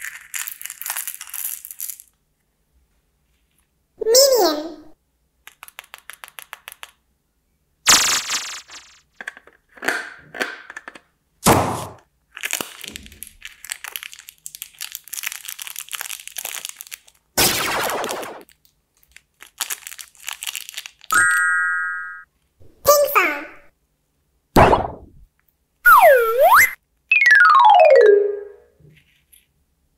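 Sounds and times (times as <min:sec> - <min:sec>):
candy wrappers crinkling: 0:00.0 - 0:02.2, 0:05.4 - 0:07.0, 0:12.3 - 0:21.2
wrappers ripping: 0:00.0 - 0:02.2, 0:12.3 - 0:21.1.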